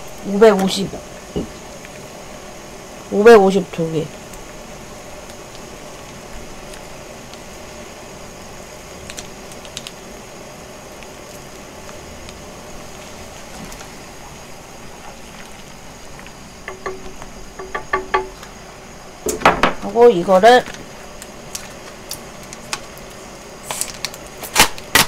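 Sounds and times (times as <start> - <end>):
soup heating on stove hiss: 0.0 - 25.0
sauce packet clicks: 9.0 - 10.0.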